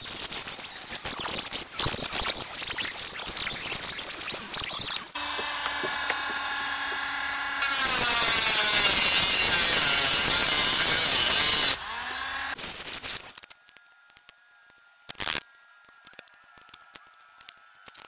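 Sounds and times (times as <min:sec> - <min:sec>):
rotary tool whine: 0:03.0 - 0:12.6
cut-off disc grinding metal: 0:05.1 - 0:12.6.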